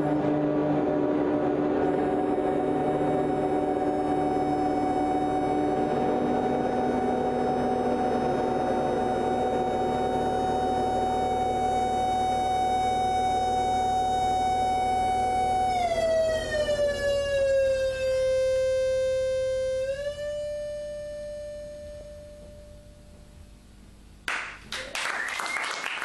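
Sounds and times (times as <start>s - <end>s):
electronic ambient drone: 0.0s - 23.6s
audience applause: 24.3s - 26.0s.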